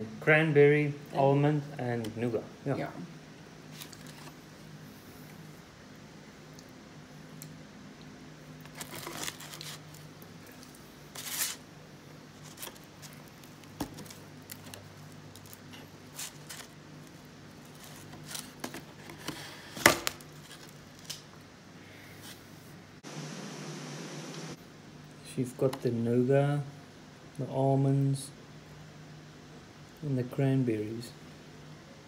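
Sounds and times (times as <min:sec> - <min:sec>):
cardboard box rustling: 0:08.7 - 0:09.9.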